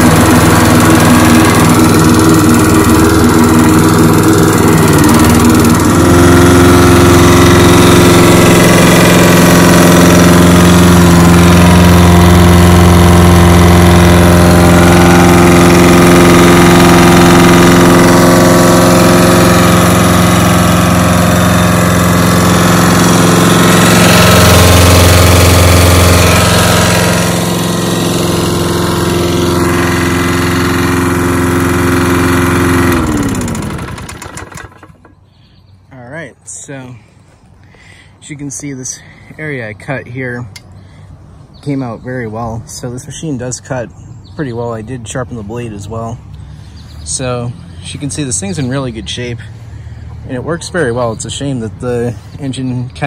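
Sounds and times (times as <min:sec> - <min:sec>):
lawn mower engine running: 0:00.0 - 0:39.8.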